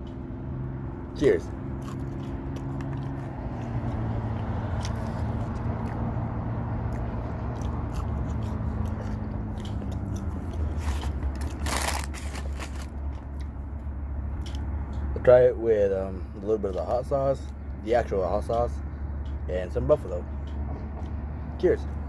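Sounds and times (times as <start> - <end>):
chewing and crunching food: 1.2 - 15.1.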